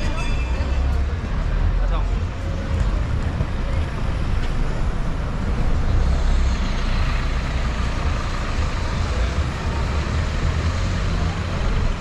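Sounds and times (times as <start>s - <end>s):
heavy vehicle engine rumble: 0.0s - 12.0s
road noise: 0.0s - 12.0s.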